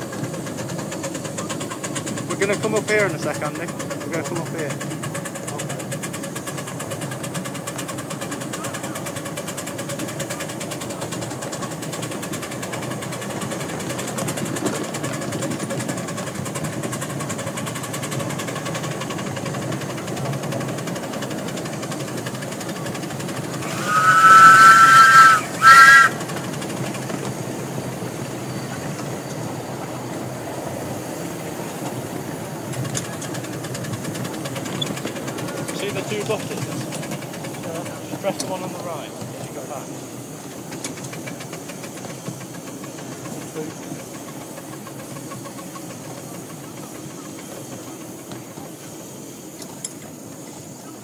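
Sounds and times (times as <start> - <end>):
miniature steam locomotive running: 0.0 - 51.0
steam whistle: 23.6 - 26.4.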